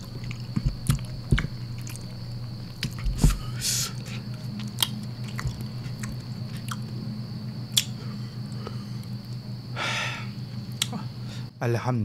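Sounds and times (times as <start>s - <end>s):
wet chewing and lip smacks: 0.0s - 3.1s, 4.4s - 6.9s, 7.7s - 8.0s
low electrical hum: 0.0s - 12.0s.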